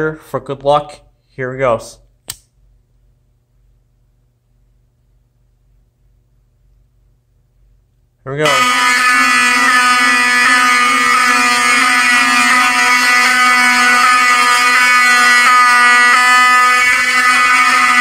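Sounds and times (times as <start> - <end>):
fire alarm horns: 8.4 - 18.0.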